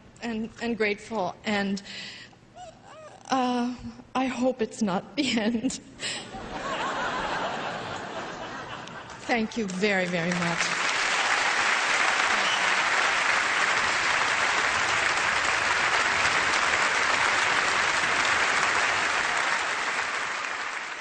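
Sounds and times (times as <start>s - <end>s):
large audience applauding: 6.9s - 21.0s.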